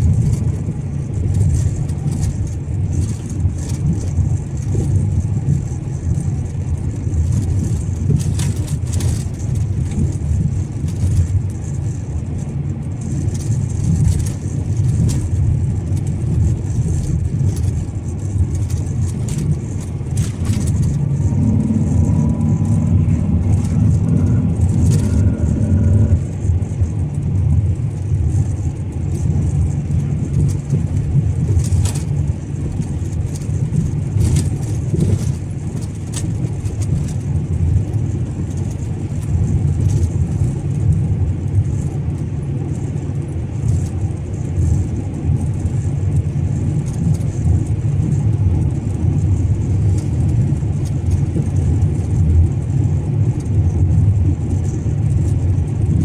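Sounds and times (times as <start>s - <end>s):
car engine and tyre rumble: 0.0s - 56.0s
pitched hum: 18.3s - 28.6s.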